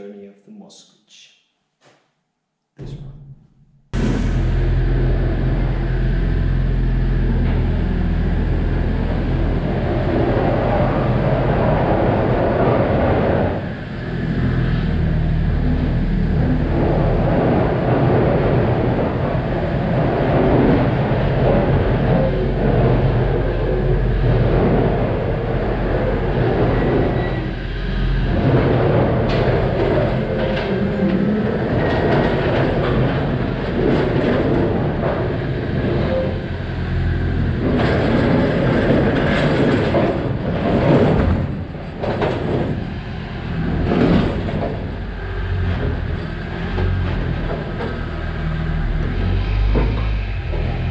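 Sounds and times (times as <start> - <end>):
metal shell rumbling and rattling: 16.2 - 48.1.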